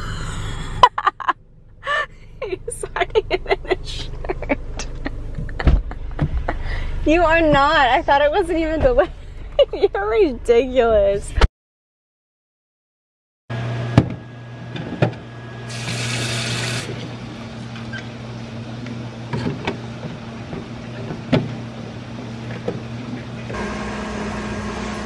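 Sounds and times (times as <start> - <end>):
low appliance hum: 13.6 - 25.0.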